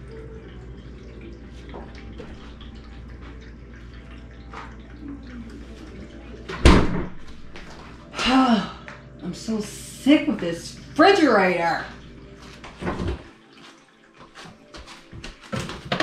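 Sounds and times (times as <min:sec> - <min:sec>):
refrigerator low hum: 0:00.0 - 0:13.3
refrigerator door thump: 0:06.5 - 0:07.2.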